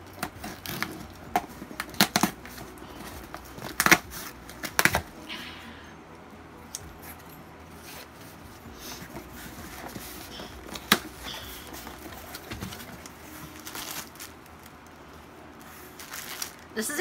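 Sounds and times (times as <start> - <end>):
cardboard and tape rustling: 0.0 - 5.4, 6.8 - 17.0
cardboard snapping: 0.1 - 5.2, 9.1 - 14.3.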